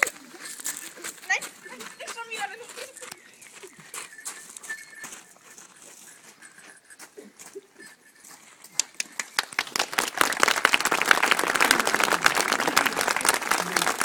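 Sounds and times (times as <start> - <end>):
crowd applause: 9.4 - 14.0.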